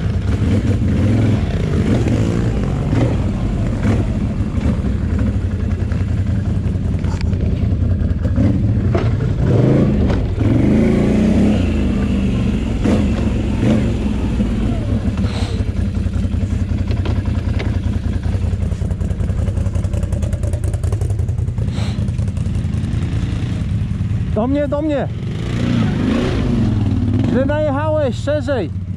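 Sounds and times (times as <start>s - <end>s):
knocks and rattles of vehicle: 0.0s - 10.8s, 11.7s - 23.1s
atv engine running: 0.0s - 28.9s.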